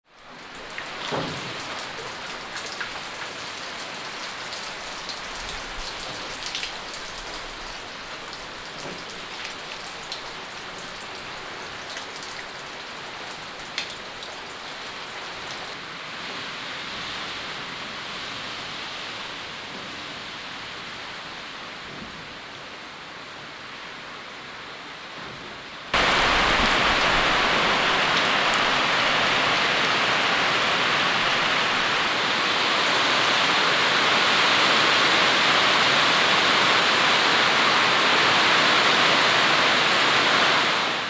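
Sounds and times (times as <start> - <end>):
raindrops striking close by: 0.0 - 15.8, 25.9 - 32.2
steady rain falling: 0.0 - 41.0.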